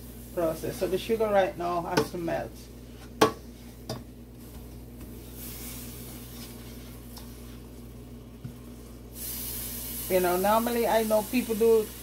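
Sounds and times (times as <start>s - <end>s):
low electrical hum: 0.0s - 12.0s
sugar melting hiss: 5.2s - 12.0s.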